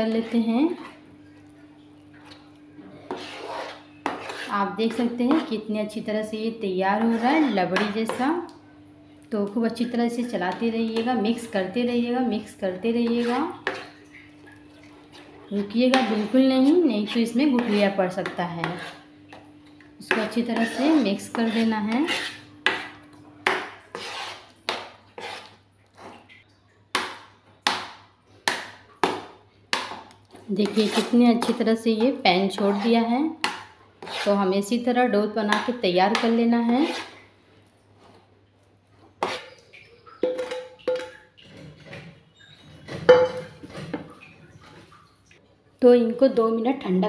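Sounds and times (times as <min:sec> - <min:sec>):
spatula scraping dough in pan: 0:00.0 - 0:01.0, 0:02.8 - 0:05.7, 0:06.9 - 0:08.3, 0:12.9 - 0:14.0, 0:15.1 - 0:19.1, 0:20.1 - 0:26.1, 0:29.8 - 0:34.5, 0:35.5 - 0:37.2, 0:39.2 - 0:39.6.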